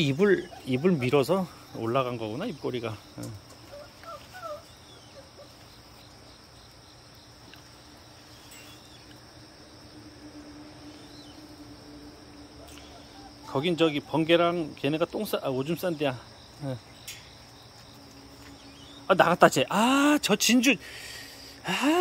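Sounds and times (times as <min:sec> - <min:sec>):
puppies squeaking: 0:00.0 - 0:01.5, 0:03.6 - 0:05.6
crickets chirring: 0:00.0 - 0:22.0.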